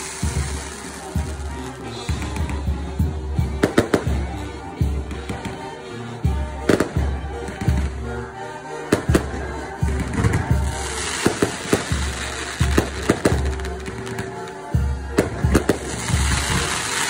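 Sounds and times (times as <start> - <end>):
fireworks bangs: 0.0 - 2.7, 8.9 - 14.5, 15.1 - 17.0
fireworks crackling: 0.0 - 17.0
music with low beat: 0.0 - 17.0.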